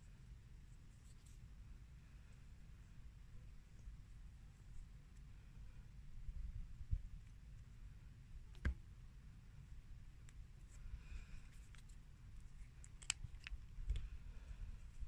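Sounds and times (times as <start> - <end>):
sharp plastic clicks: 12.7 - 14.1.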